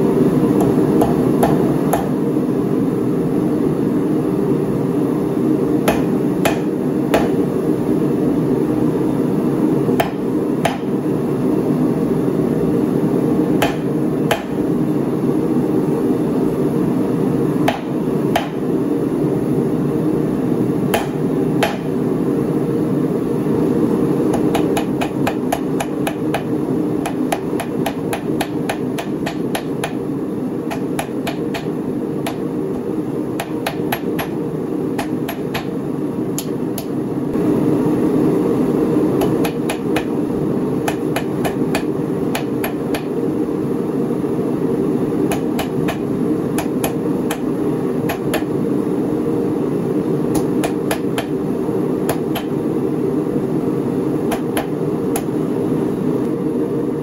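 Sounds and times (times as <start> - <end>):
steady low hum: 0.0 - 57.0
hammer striking steel on anvil: 0.6 - 2.2, 5.8 - 7.4, 10.0 - 11.0, 13.6 - 14.6, 17.6 - 18.7, 20.9 - 21.9, 24.3 - 30.0, 30.7 - 32.4, 33.4 - 34.4, 35.0 - 35.7, 39.2 - 40.1, 40.8 - 43.1, 45.3 - 47.5.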